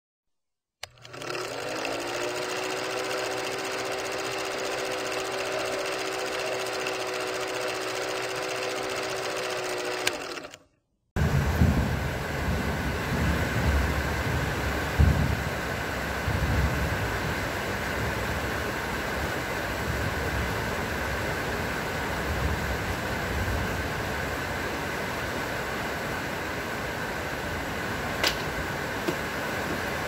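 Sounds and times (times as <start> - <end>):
film projector whirring and rattling: 0.8 - 10.8, 24.2 - 30.0
rain falling: 11.2 - 30.0.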